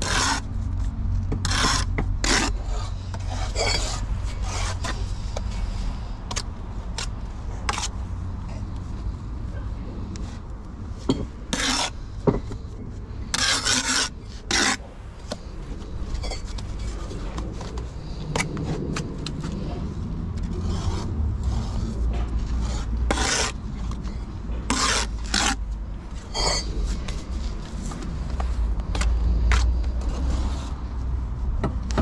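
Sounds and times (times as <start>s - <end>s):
trowel scraping mortar: 0.0s - 0.5s, 1.4s - 5.4s, 7.0s - 7.9s, 11.2s - 12.0s, 13.3s - 15.5s, 20.4s - 24.0s, 24.6s - 25.6s, 26.2s - 27.2s
low steady rumble: 0.0s - 32.0s.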